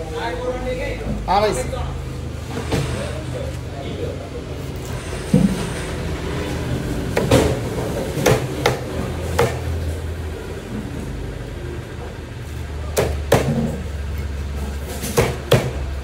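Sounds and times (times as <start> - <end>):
knife chopping fish on block: 9.4 - 9.7.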